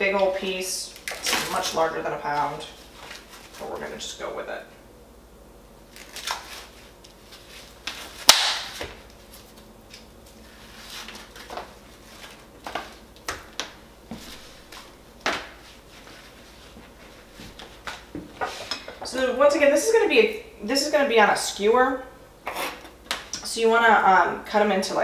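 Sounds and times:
plastic packaging rustling: 0:00.9 - 0:04.0, 0:05.9 - 0:18.1.

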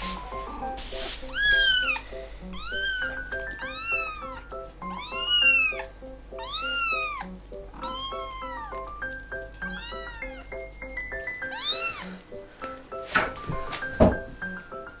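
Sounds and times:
light background music: 0:00.0 - 0:15.0
kitten meowing loudly: 0:01.3 - 0:08.8, 0:09.7 - 0:10.5, 0:11.5 - 0:12.2.

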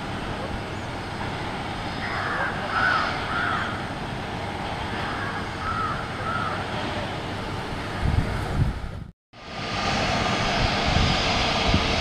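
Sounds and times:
jet engines rumbling: 0:00.0 - 0:12.0
crows cawing: 0:02.0 - 0:03.8, 0:05.0 - 0:06.7.

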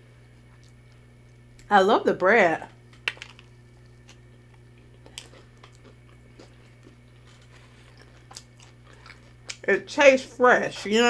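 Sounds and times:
person chewing: 0:00.3 - 0:01.7, 0:03.2 - 0:09.6.

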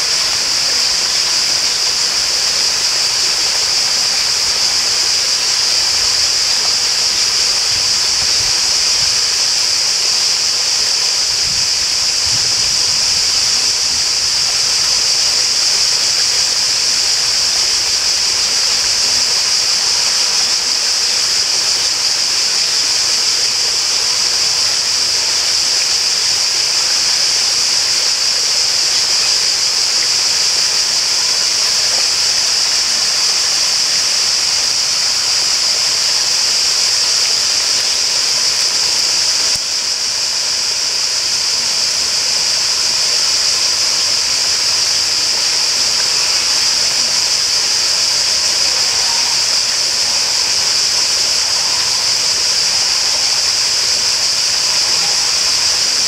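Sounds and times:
flowing water hissing: 0:00.0 - 0:56.0.

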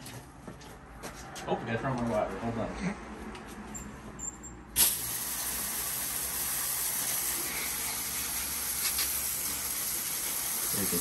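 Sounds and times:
hose spraying water on concrete: 0:04.8 - 0:11.0.

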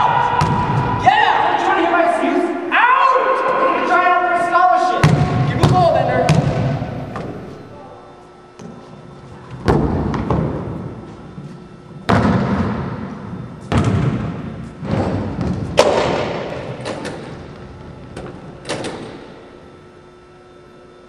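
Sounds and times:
basketball bouncing on hardwood: 0:05.0 - 0:06.7.

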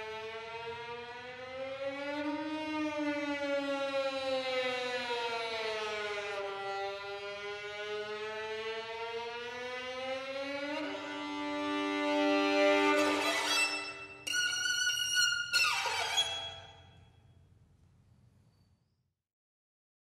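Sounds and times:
violin bowed notes: 0:10.3 - 0:16.8
high sustained violin note: 0:10.3 - 0:16.9.

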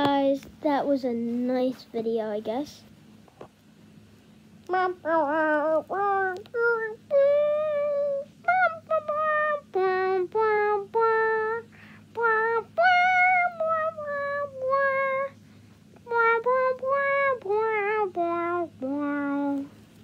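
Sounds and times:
child singing: 0:04.6 - 0:15.4, 0:16.0 - 0:19.7.

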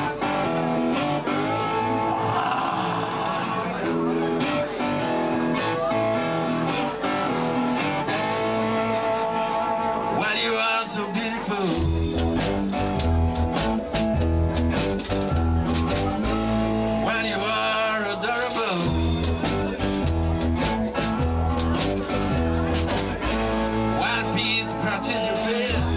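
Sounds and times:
blues on cigar box guitars: 0:00.0 - 0:25.9
heavy bass and drum beat: 0:11.6 - 0:17.0, 0:18.2 - 0:25.9.

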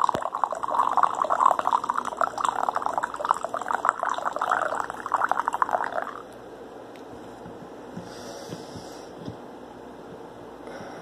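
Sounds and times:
coffee pouring into mug: 0:00.0 - 0:06.2.

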